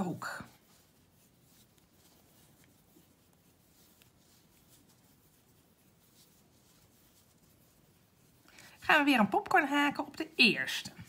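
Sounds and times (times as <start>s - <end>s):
crochet hook scratching yarn: 0.0s - 11.0s.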